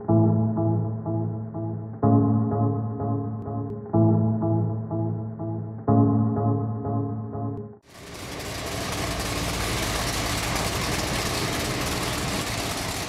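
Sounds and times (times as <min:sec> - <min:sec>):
music: 0:00.0 - 0:07.8
car engine running: 0:07.9 - 0:13.0.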